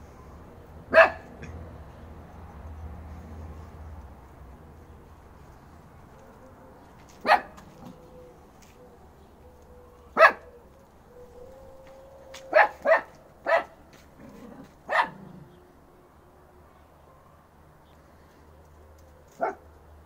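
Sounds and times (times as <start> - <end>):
puppy barking: 0.9 - 1.6, 7.2 - 8.0, 10.1 - 10.5, 12.4 - 13.8, 14.8 - 15.5, 19.3 - 19.7.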